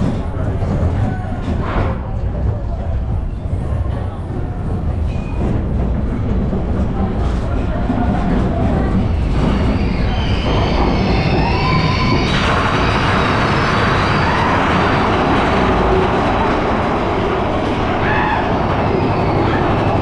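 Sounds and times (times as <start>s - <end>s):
coaster cars rumbling on track: 0.0s - 20.0s
wheel squeal: 8.8s - 15.4s, 17.7s - 20.0s.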